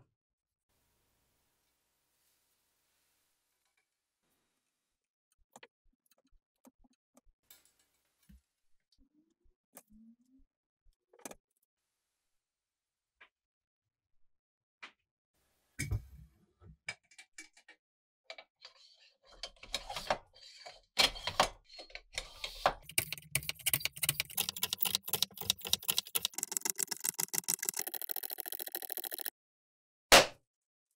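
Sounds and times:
bicycle pump strokes: 22.2s - 29.3s.

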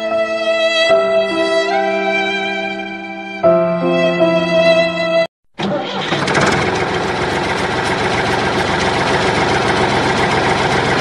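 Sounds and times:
engine idling: 6.0s - 11.0s.

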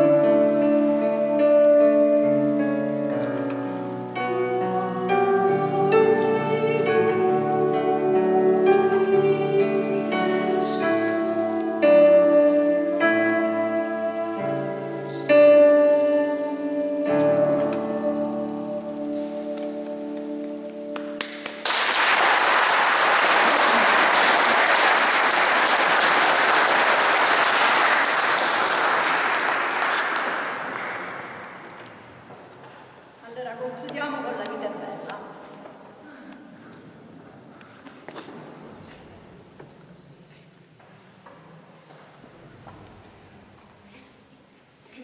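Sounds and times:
digital piano accompaniment: 0.0s - 22.1s
boy singing: 4.3s - 20.4s
applause: 21.0s - 31.8s.

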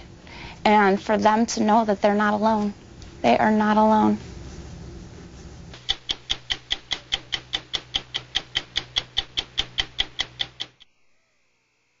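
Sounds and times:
rapid mechanical ticking: 5.8s - 10.8s.

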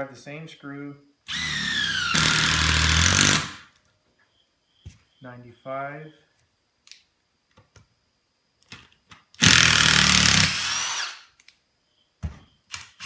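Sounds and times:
impact driver driving screw: 9.4s - 11.2s.

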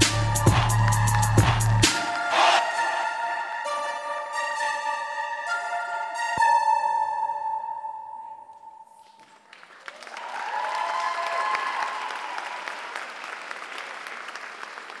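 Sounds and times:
audience applause and cheering: 0.0s - 2.6s, 9.3s - 15.0s.

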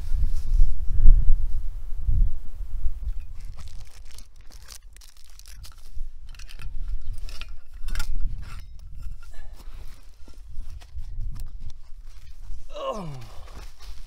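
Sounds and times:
wind rumble on microphone: 0.0s - 4.3s, 5.5s - 13.4s
clicks crinkles and scrapes: 3.1s - 12.7s.

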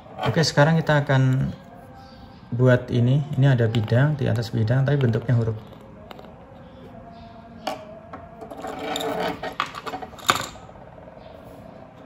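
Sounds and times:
clattering rattle: 8.4s - 10.6s.

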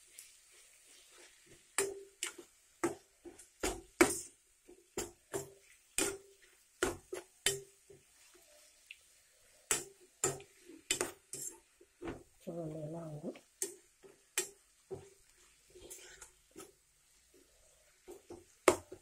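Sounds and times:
spoon scraping metal pan: 10.2s - 11.8s.

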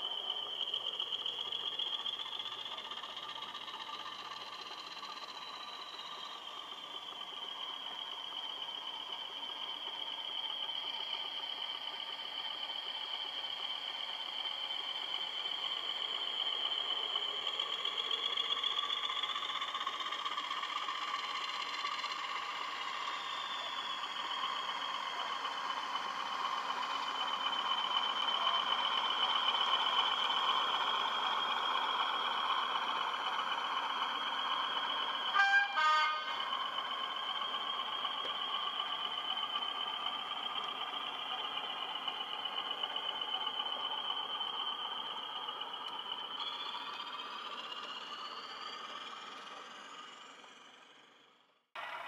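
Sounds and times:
wheels clattering on rails: 0.0s - 51.1s
model train motor whine: 0.0s - 52.0s
model train horn toot: 35.2s - 36.8s.

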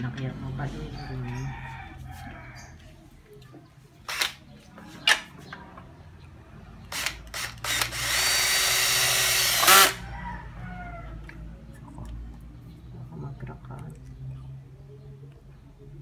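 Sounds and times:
drill trigger blips: 6.9s - 9.9s
cordless drill motor whine: 6.9s - 10.0s.

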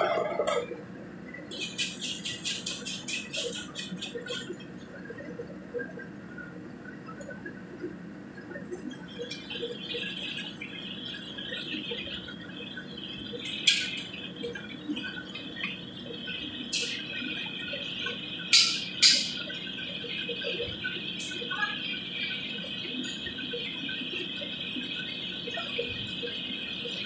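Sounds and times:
hot oil sizzling: 16.6s - 20.2s.

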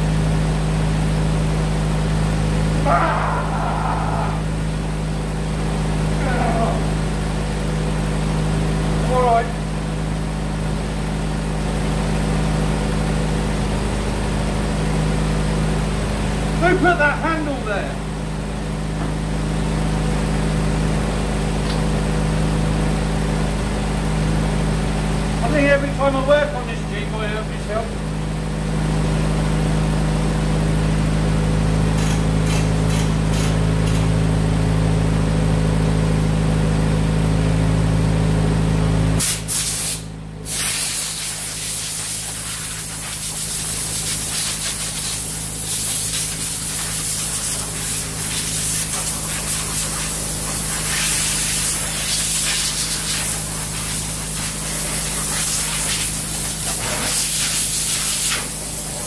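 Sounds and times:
car engine idling: 0.0s - 39.2s, 41.2s - 59.0s
compressed air hissing: 39.2s - 59.0s.

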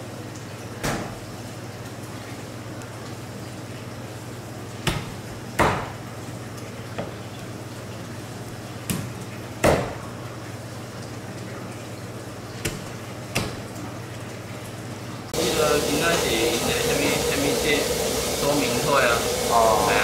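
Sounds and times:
steady low hum: 15.2s - 20.0s.

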